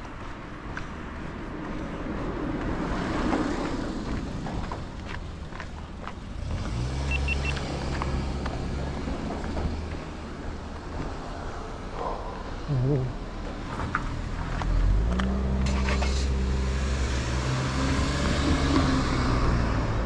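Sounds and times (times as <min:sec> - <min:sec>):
small truck engine humming: 0:04.8 - 0:11.3
short high beeps: 0:07.1 - 0:07.6.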